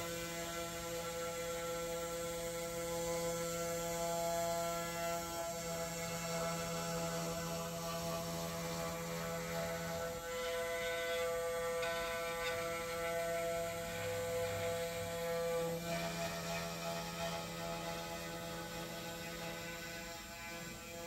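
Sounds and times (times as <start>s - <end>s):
router spindle motor whining: 0.0s - 21.0s.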